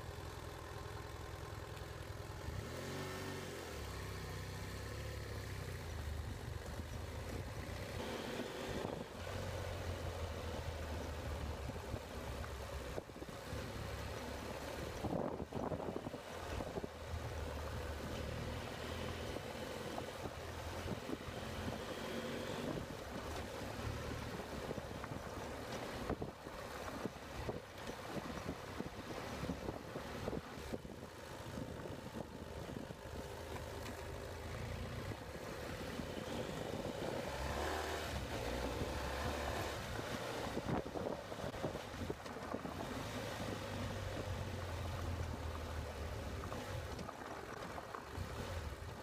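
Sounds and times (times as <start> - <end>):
motorcycle engine running: 0.0 - 49.0
wind noise on microphone: 14.8 - 17.2, 19.9 - 33.2, 35.9 - 49.0.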